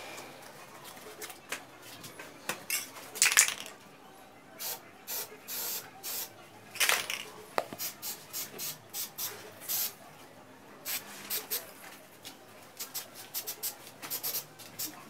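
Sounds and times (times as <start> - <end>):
spray can hissing bursts: 4.6 - 6.3, 7.8 - 10.0, 10.9 - 11.6, 12.8 - 15.0.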